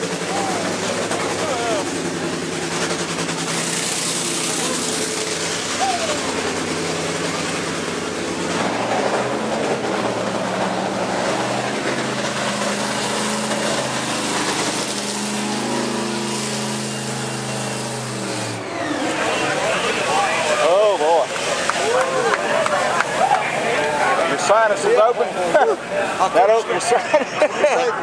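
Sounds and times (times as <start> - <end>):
drag racing car engine running: 0.0 - 28.0.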